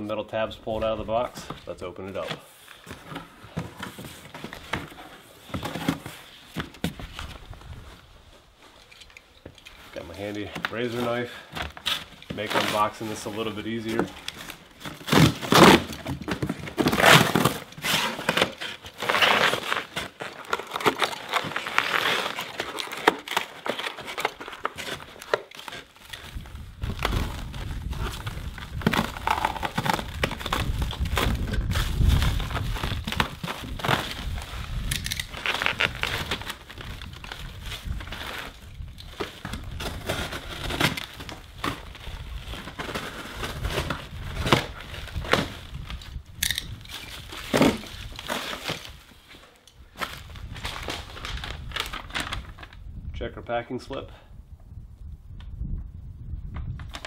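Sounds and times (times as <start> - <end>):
plastic wrapping crinkling: 11.7 - 52.8.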